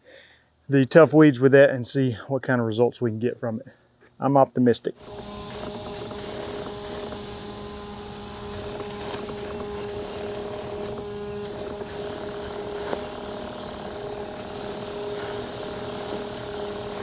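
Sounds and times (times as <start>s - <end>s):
electric pump humming: 5.0s - 17.0s.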